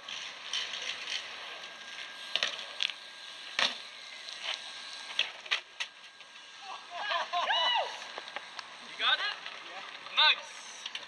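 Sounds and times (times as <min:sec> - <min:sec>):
bike knocks and clacks: 0:03.6 - 0:03.8.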